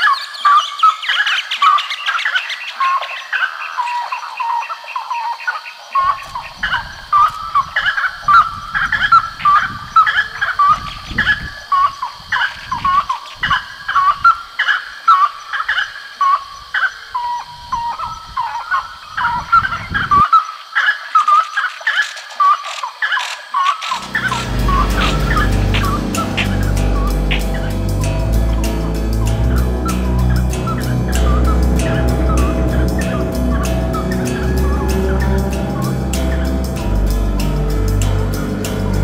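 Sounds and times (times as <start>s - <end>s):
low rumble: 24.0s - 39.0s.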